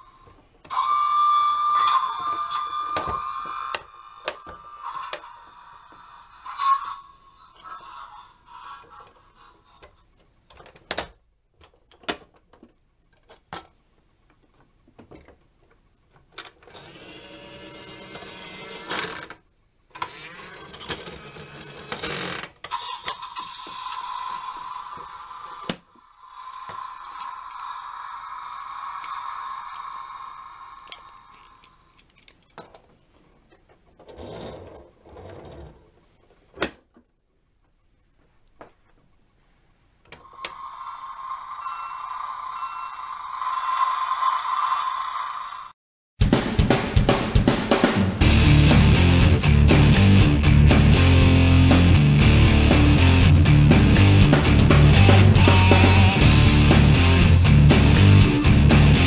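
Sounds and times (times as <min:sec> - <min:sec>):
toy bin lifter whirring: 0:16.4 - 0:31.8
electronic toy tone: 0:40.3 - 0:45.7.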